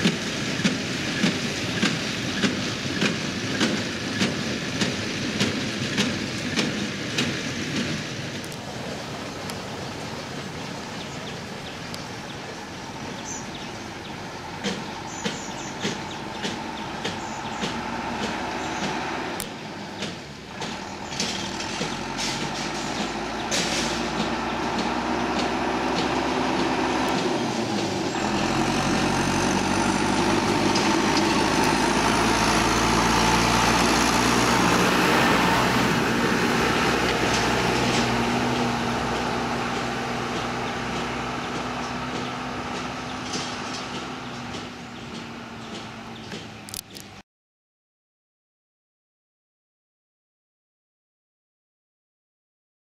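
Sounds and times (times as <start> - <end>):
tractor diesel engine: 0.0 - 47.2
sharp rattling knocks: 14.6 - 19.0.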